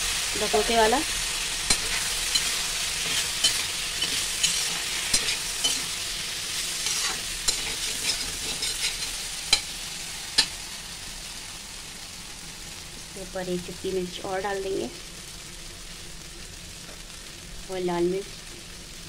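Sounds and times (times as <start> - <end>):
food sizzling in oil: 0.0 - 19.0
metal spatula scraping pan: 1.6 - 9.7.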